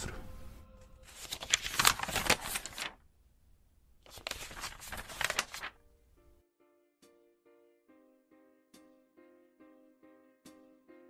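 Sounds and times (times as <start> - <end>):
book pages riffled: 1.0 - 3.0, 4.0 - 5.8
soft piano music: 5.4 - 11.0.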